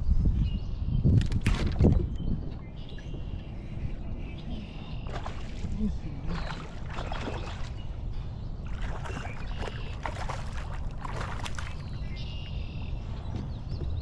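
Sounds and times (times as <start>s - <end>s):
steady low rumble: 0.0s - 14.0s
water splashing beside kayak: 5.0s - 8.0s, 8.6s - 12.4s.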